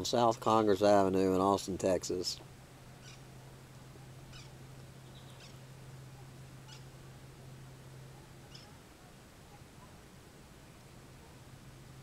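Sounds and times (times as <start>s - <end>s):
steady low hum: 0.0s - 12.0s
small animal chirps: 3.0s - 3.2s, 4.3s - 5.6s, 8.5s - 8.8s.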